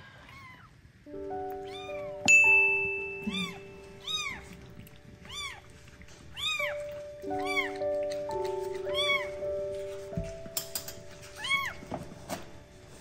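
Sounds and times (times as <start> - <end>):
background music with held notes: 1.0 - 13.0
kittens mewing: 3.2 - 9.5.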